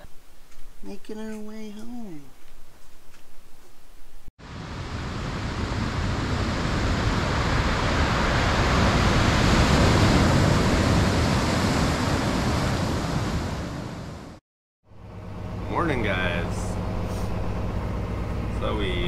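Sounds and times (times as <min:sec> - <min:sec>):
ocean waves rushing: 0:04.4 - 0:14.4.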